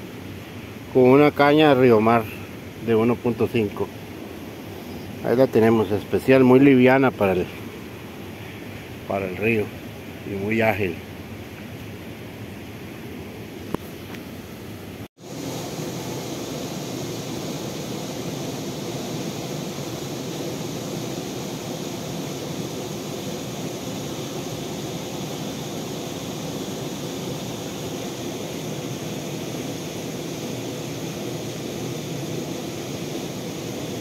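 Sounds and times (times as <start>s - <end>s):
steady rushing noise: 15.2s - 34.0s.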